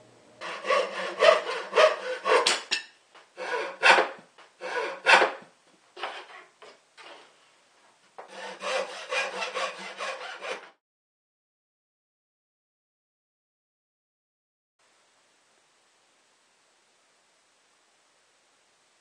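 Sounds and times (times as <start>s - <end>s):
hand saw rasping through wood: 0.4s - 2.6s, 3.4s - 5.4s, 8.2s - 10.8s.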